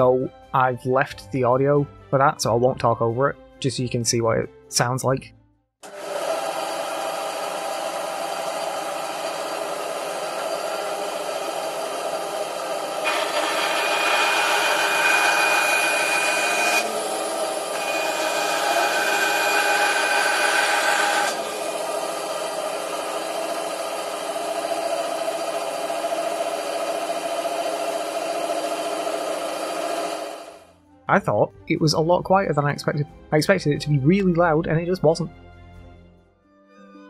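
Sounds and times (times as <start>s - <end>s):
bandsaw cutting wood: 5.8s - 30.7s.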